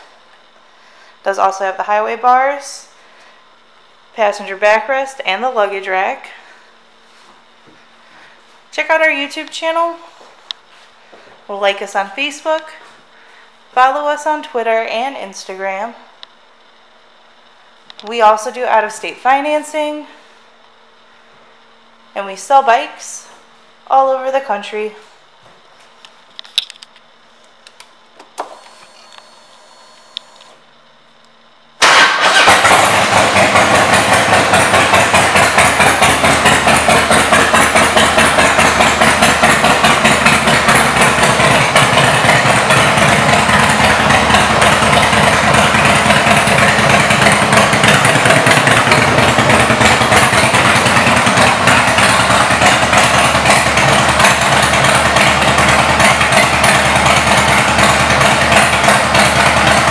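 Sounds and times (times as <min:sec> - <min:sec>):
motorcycle engine running: 0:31.8 - 0:59.9.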